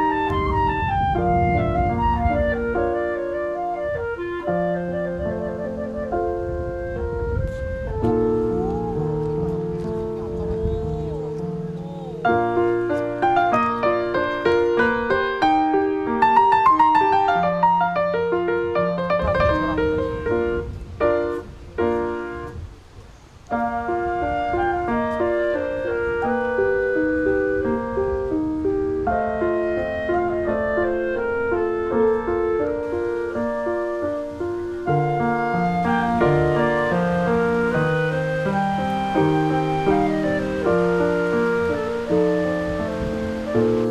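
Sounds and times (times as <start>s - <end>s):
instrumental music with held notes: 0.0s - 22.7s, 23.4s - 43.9s
piano melody: 0.0s - 43.9s.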